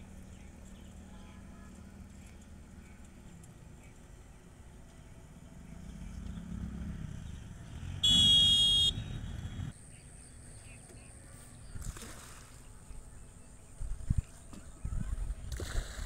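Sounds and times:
motorcycle engine rumbling: 2.0 - 9.8
motorcycle horn honk: 8.0 - 9.7.

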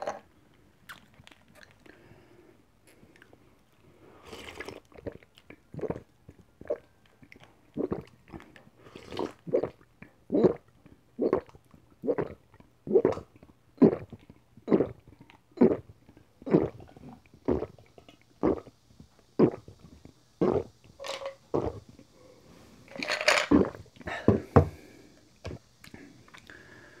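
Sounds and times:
loud gulping swallows: 7.8 - 17.8, 18.4 - 20.8, 21.5 - 21.9.

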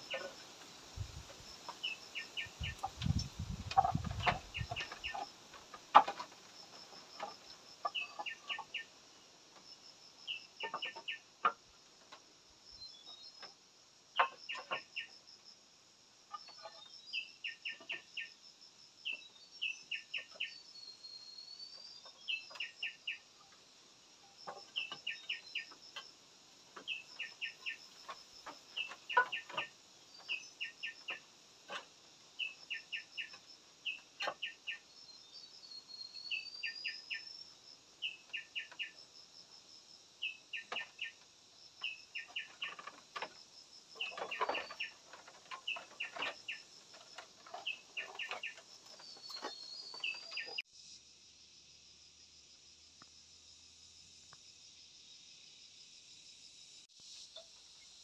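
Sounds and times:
birds chirping: 1.5 - 5.3, 5.9 - 8.9, 24.5 - 25.8, 26.8 - 37.3, 40.2 - 41.2, 41.8 - 43.3, 44.0 - 50.6.

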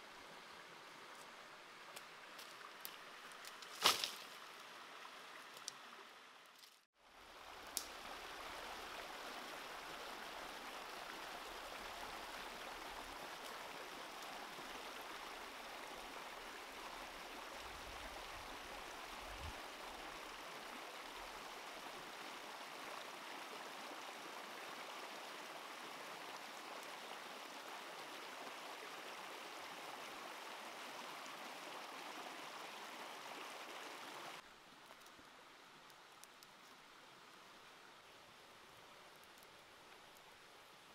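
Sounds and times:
stream rushing over rocks: 7.1 - 34.5.

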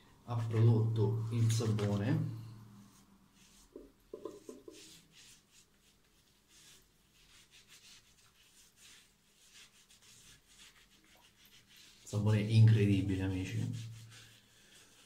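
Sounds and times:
lather rubbed into beard: 3.4 - 12.4, 13.0 - 15.0.

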